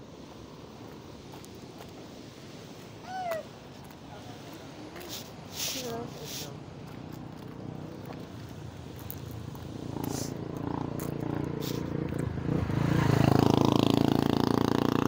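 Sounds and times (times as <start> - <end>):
vehicle engine humming: 5.8 - 15.0.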